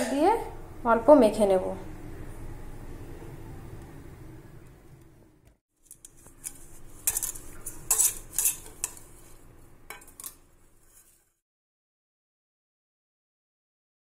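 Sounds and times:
metal cake tin rattling: 5.9 - 9.1.

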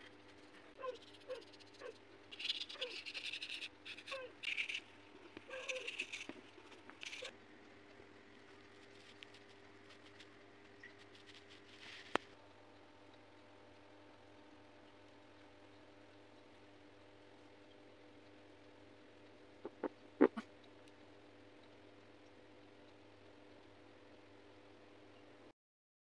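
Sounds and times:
faint steady hum: 0.0 - 25.5
paintbrush scrubbing on paper: 0.3 - 4.9, 5.5 - 7.3.

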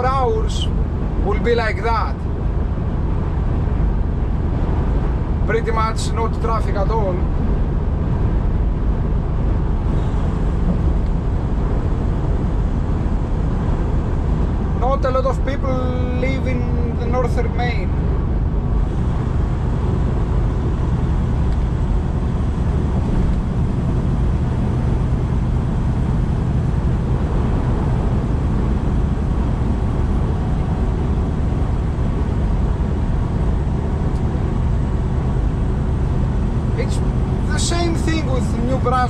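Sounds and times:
diesel engine drone: 0.0 - 39.0
tyre and road noise: 0.0 - 39.0.

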